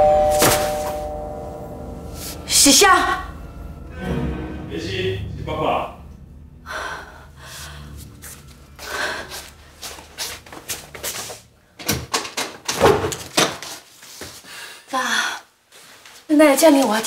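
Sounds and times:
low steady hum: 0.0 - 11.8.

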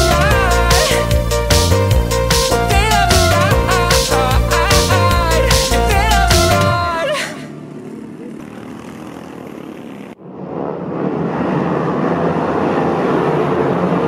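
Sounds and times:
song: 0.0 - 7.6
kart engines: 5.2 - 10.2.

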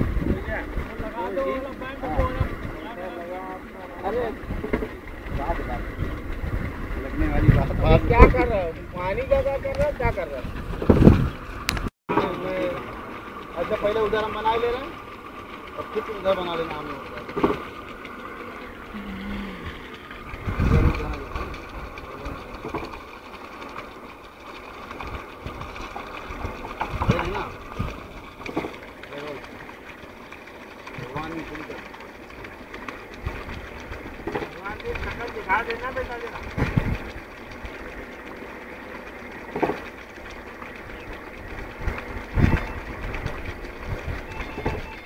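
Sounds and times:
water gushing onto wet ground: 0.0 - 45.0.

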